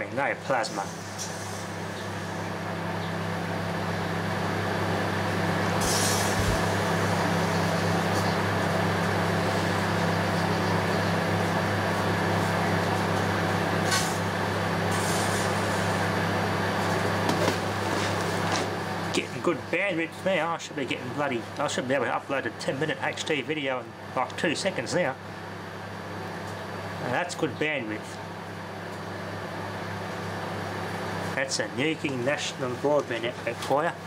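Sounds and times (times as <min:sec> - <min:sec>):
microwave oven hum and fan: 0:00.0 - 0:34.0.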